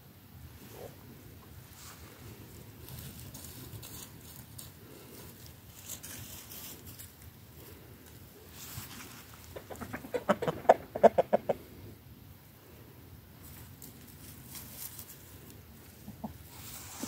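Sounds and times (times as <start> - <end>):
chickens clucking: 8.8 - 12.0, 15.8 - 17.0.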